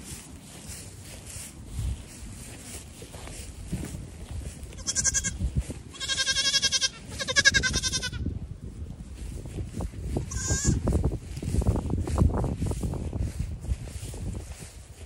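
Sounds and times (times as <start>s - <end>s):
goat kid bleating: 4.6s - 8.3s, 10.2s - 10.8s.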